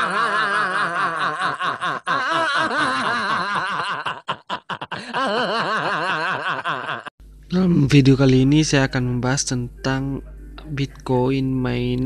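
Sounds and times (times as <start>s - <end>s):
man laughing hard: 0.0s - 7.1s.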